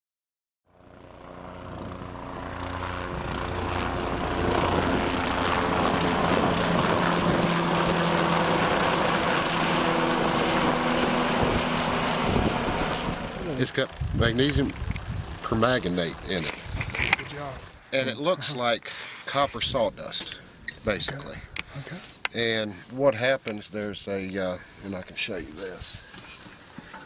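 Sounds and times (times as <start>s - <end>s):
helicopter flying overhead: 0.7s - 21.9s.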